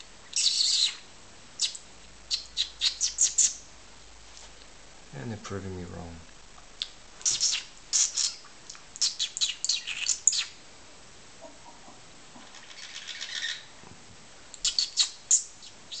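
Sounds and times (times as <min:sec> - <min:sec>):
budgerigars chirping: 0:00.3 - 0:01.0, 0:01.6 - 0:03.6, 0:07.2 - 0:10.6, 0:12.5 - 0:13.7, 0:14.6 - 0:16.0.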